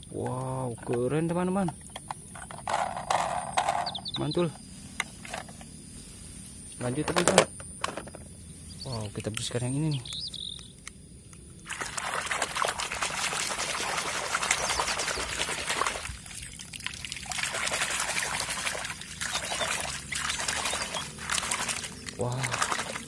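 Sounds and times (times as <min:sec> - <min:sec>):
water splashing in a puddle: 0:11.6 - 0:23.0.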